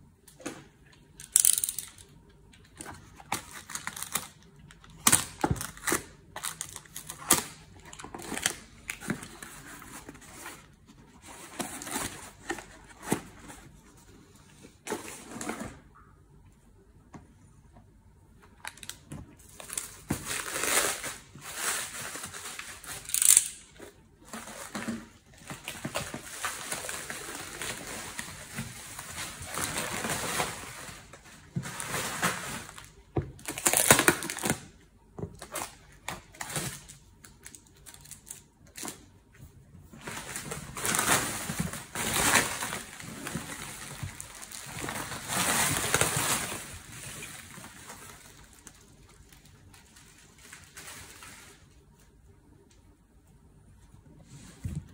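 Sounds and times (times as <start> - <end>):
plastic wrap crinkling: 40.0 - 51.8.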